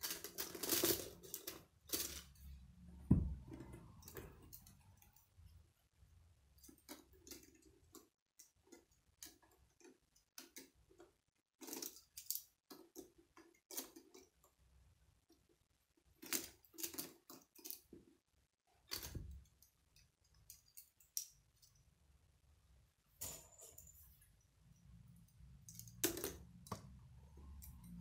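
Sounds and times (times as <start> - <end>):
plastic construction pieces clicking: 6.6 - 14.5.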